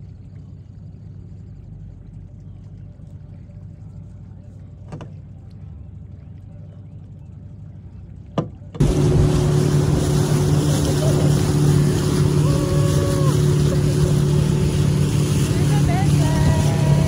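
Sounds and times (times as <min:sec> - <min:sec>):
motorboat engine: 0:00.0 - 0:17.0
wake rushing: 0:08.8 - 0:17.0.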